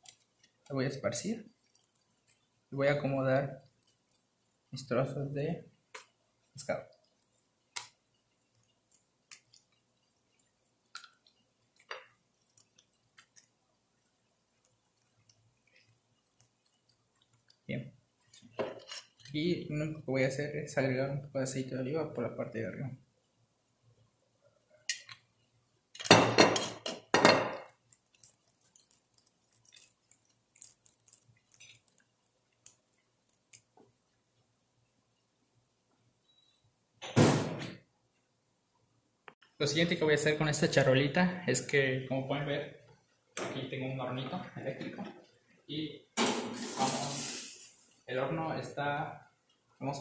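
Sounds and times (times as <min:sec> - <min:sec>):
light ticks and taps in metal tray: 0:10.8 - 0:13.5.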